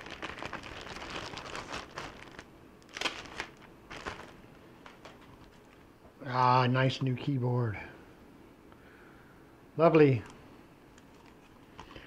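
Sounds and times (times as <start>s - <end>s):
plastic packaging crinkling: 0.0s - 5.9s.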